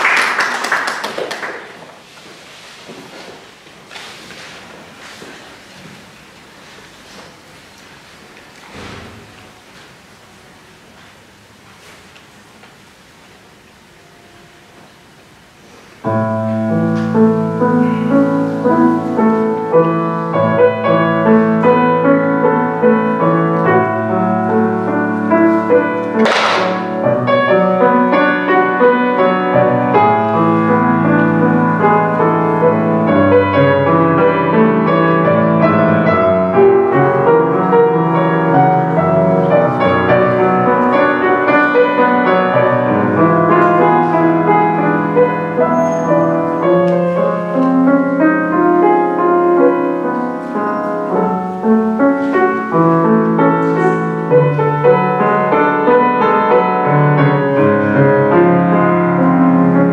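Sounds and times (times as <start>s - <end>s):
solo grand piano piece: 0.0s - 59.9s.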